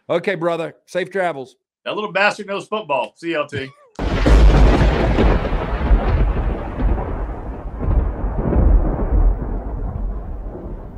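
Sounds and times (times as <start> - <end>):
thunder crack and rumble: 4.0 - 10.9.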